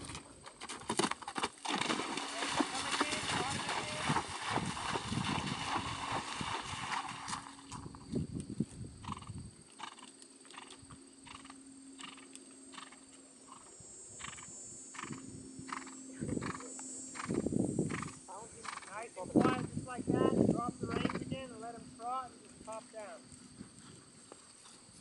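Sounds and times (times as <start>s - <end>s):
hoofbeats on grass: 0.0s - 7.9s
hooves splashing in water: 0.9s - 7.8s.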